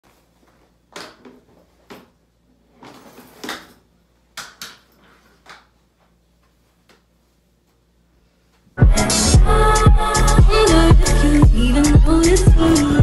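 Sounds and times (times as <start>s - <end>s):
knocks and rustles of handling things: 0.1s - 7.8s.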